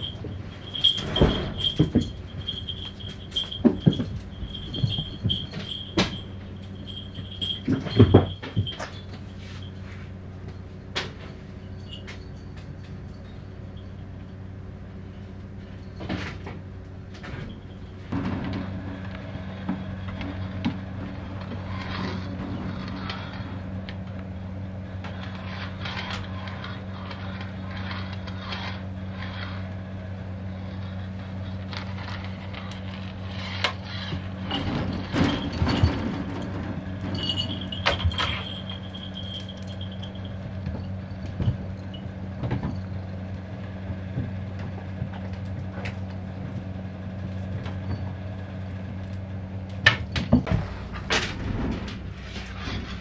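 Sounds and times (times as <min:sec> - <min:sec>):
low electrical hum: 0:00.0 - 0:53.0
sliding door rattling in track: 0:18.1 - 0:23.9, 0:31.9 - 0:39.3, 0:50.4 - 0:53.0.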